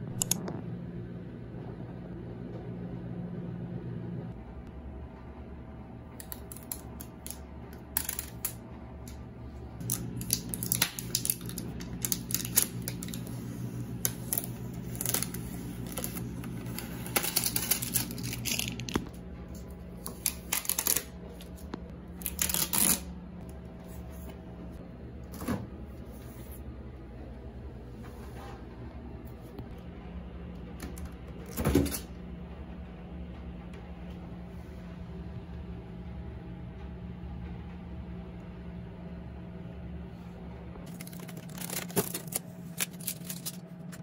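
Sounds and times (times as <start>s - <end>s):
steady low hum: 0.0s - 44.0s
protective tape ripping: 9.8s - 19.1s, 22.2s - 23.1s.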